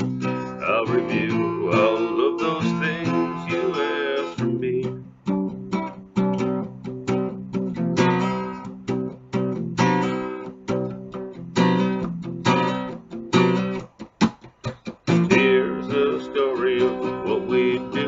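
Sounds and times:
acoustic guitar strumming: 0.0s - 18.0s.

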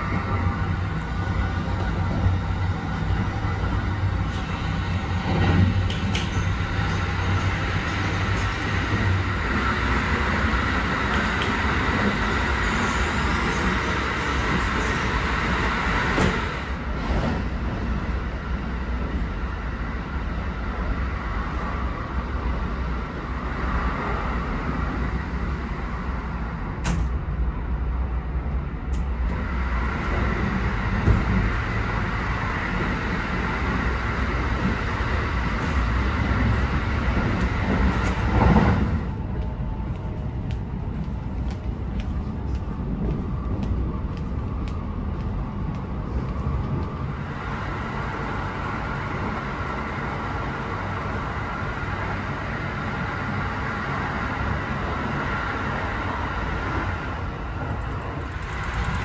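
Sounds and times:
train low rumble: 0.0s - 59.0s.

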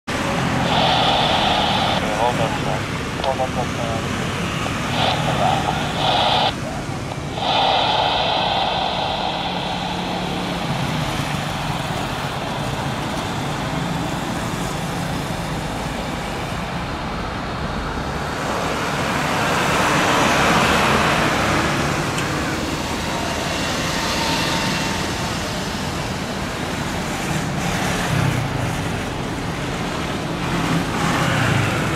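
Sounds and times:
jet engines rushing: 0.1s - 17.0s.

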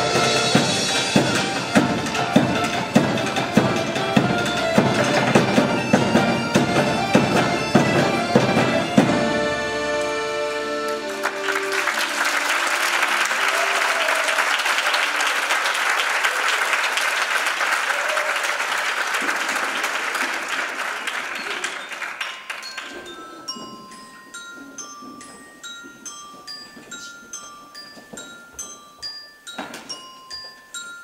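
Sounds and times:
string ensemble with accordion: 0.0s - 13.2s
audience applause: 10.9s - 23.2s.

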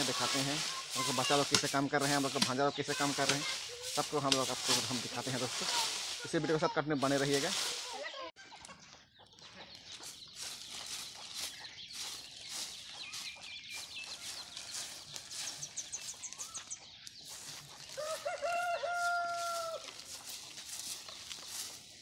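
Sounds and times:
small birds chirping: 0.0s - 22.0s
rooster crowing: 18.0s - 19.9s.

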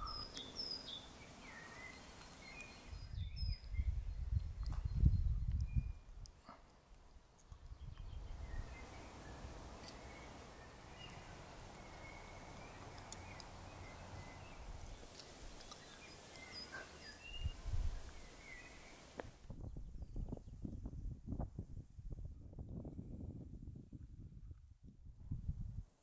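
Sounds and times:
bird chirps: 0.0s - 6.6s, 7.6s - 19.1s
steady rushing hiss: 8.7s - 19.4s.

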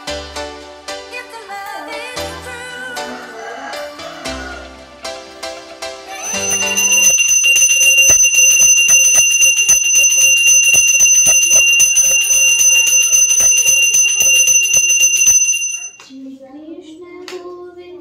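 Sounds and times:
hand bell ringing rapidly: 6.2s - 16.0s.

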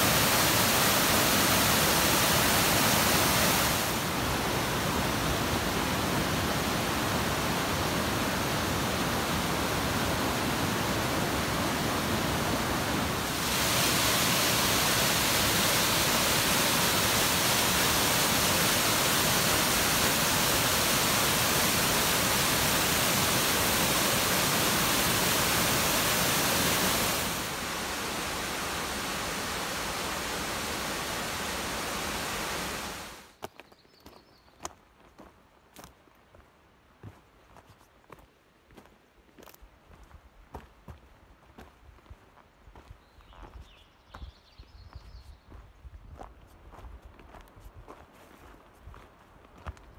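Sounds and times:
rushing water roar: 0.0s - 33.3s.

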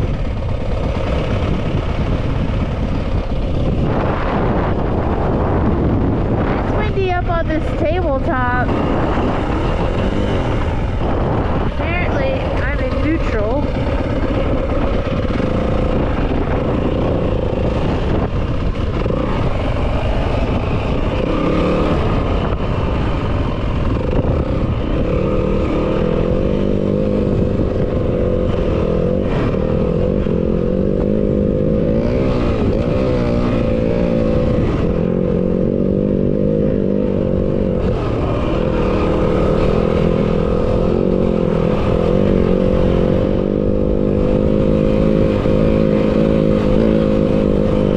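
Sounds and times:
dirt bike engine revving: 0.0s - 47.9s.

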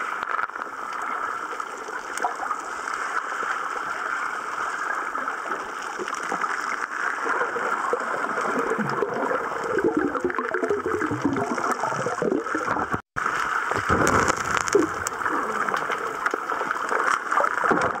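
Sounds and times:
muffled underwater water rush: 0.0s - 18.0s.

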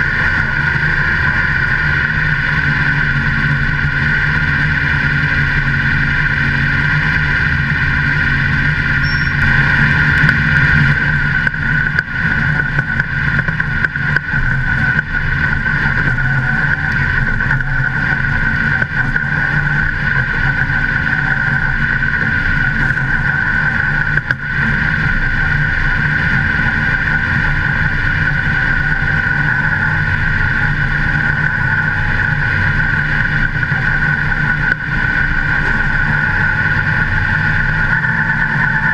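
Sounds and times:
race car engine at speed: 0.0s - 38.9s.

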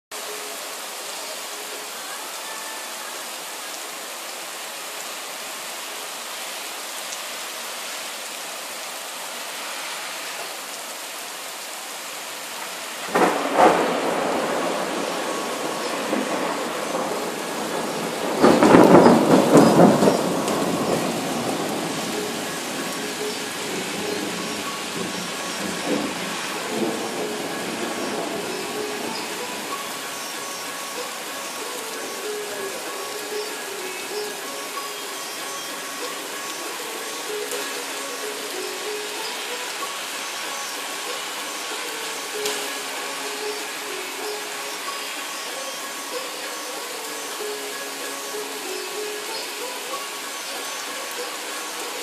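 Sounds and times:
steady rain: 0.1s - 52.0s
thunder rumbling: 13.0s - 30.1s.

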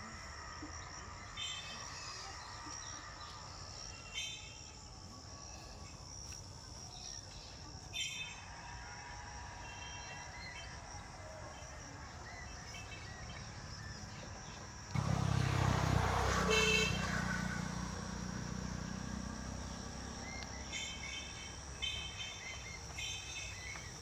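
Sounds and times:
vehicle engine rumble: 12.5s - 24.0s
car horn toot: 16.3s - 17.2s.

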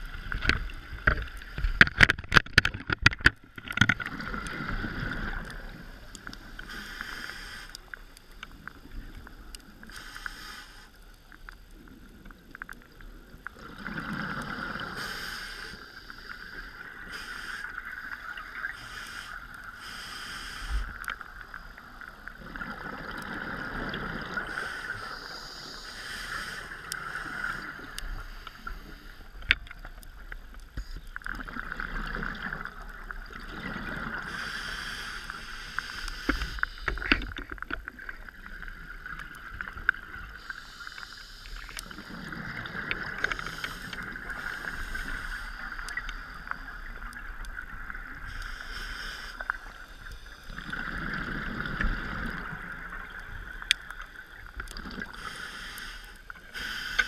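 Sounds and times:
regulator breathing underwater: 6.5s - 8.0s, 9.8s - 11.0s, 13.7s - 21.1s, 23.3s - 29.3s, 34.1s - 37.3s, 40.3s - 46.9s, 48.1s - 52.6s, 54.8s - 57.0s.

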